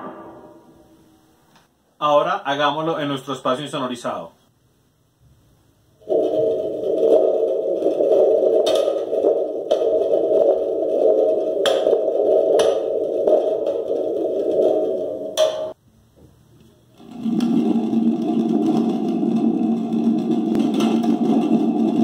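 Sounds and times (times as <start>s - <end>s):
thunder tube rumble: 6.0s - 15.8s, 17.0s - 22.0s.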